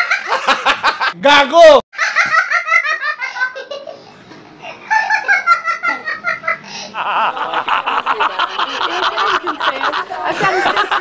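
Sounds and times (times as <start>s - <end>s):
people laughing: 0.0s - 1.2s, 4.6s - 11.0s
old man laughing heartily: 4.6s - 11.0s.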